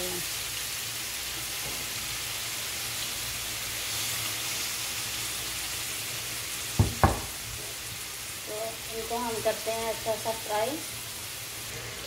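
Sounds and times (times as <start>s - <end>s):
chicken sizzling in oil: 0.0s - 12.0s
onions frying: 0.0s - 12.0s
sharp knocks: 6.8s - 7.4s.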